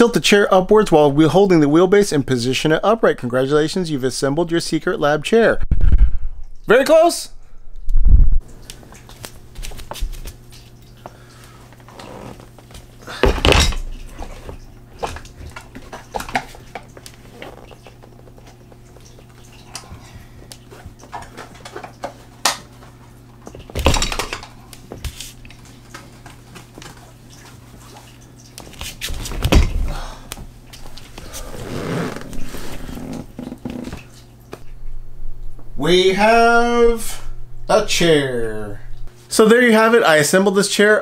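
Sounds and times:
chair clattering knocks: 0:13.1 - 0:14.6.

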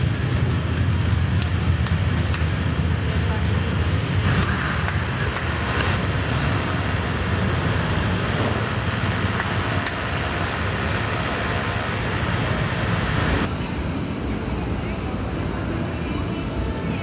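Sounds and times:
passing vehicle engines and tyres: 0:00.0 - 0:13.5.

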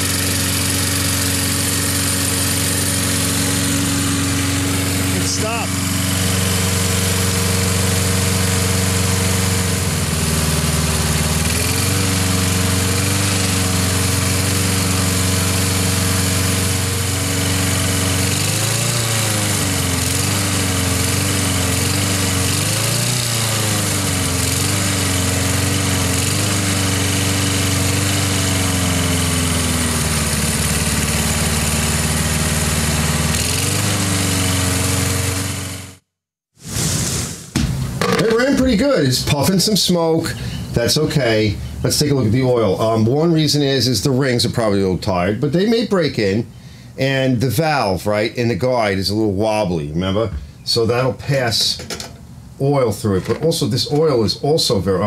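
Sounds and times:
lawnmower engine running: 0:00.0 - 0:36.0, 0:36.8 - 0:41.9.

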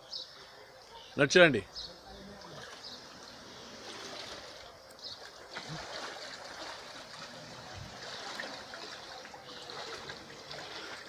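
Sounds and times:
river water sloshing: 0:02.1 - 0:11.0.

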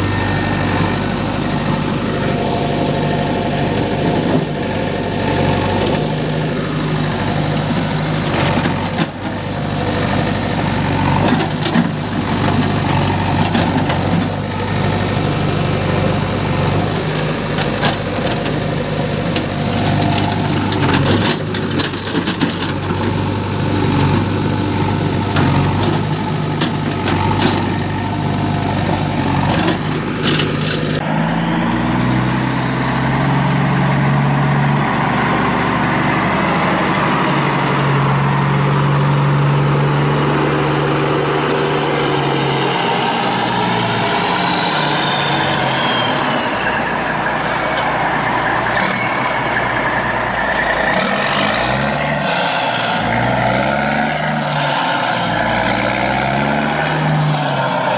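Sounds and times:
truck engine running: 0:00.0 - 0:57.9
high whine: 0:51.9 - 0:57.9.

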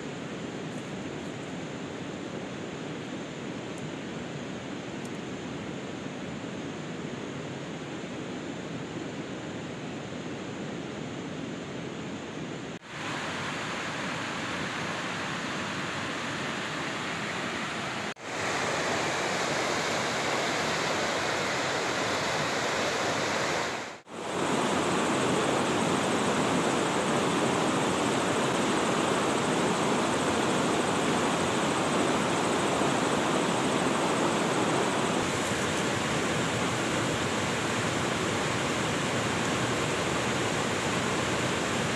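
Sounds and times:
river rushing over rocks: 0:12.9 - 0:41.9.

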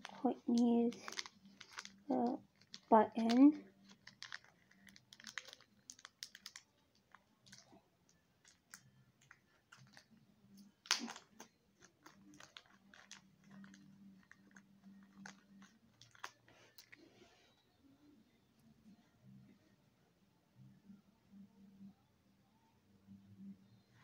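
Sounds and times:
packaging rustling: 0:00.0 - 0:07.7, 0:08.4 - 0:10.1, 0:10.8 - 0:17.0.

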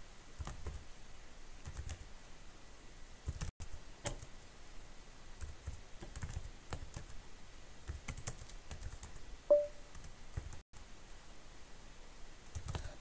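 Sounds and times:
computer keyboard keystrokes: 0:01.6 - 0:02.0, 0:05.4 - 0:07.1, 0:07.9 - 0:10.6.

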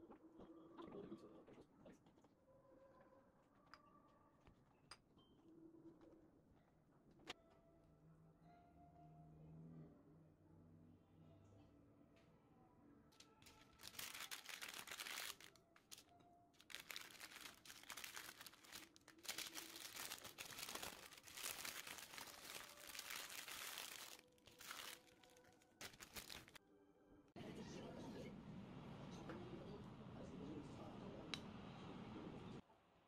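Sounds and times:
baking paper crinkling: 0:13.2 - 0:26.6.

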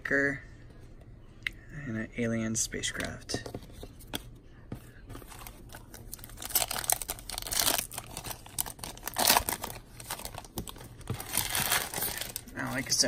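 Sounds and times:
foil wrapper crinkling and tearing: 0:05.4 - 0:13.0.

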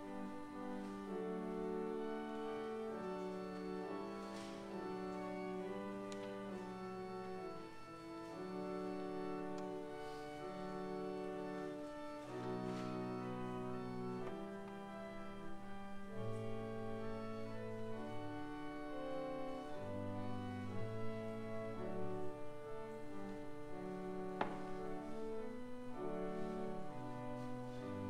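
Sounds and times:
church organ chords: 0:00.0 - 0:28.0.

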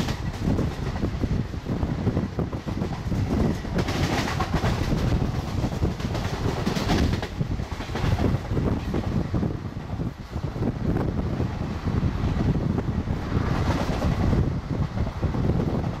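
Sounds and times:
train wheels clattering: 0:00.0 - 0:01.2, 0:02.5 - 0:09.2
wind rushing past microphone: 0:00.0 - 0:16.0.

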